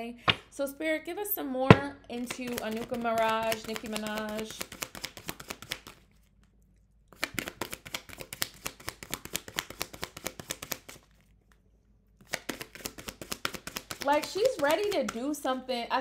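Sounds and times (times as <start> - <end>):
cards being shuffled: 2.2 - 6.4, 7.1 - 11.6, 12.2 - 15.4.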